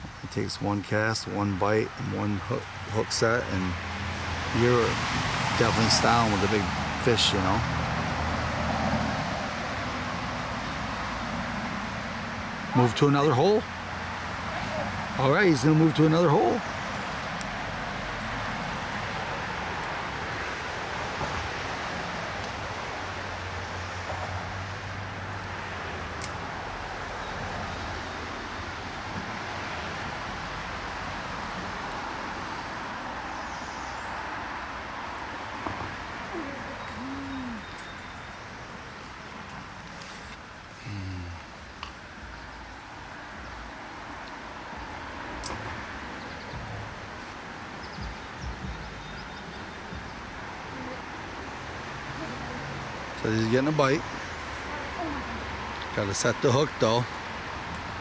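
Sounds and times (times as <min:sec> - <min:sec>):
creek water rushing: 0:00.0 - 0:58.0
low bumps: 0:45.6 - 0:51.0.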